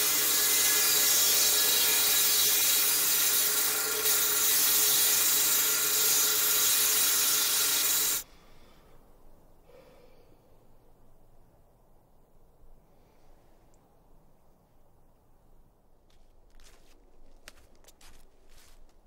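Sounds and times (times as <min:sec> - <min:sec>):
circular saw cutting log: 0:00.0 - 0:08.2.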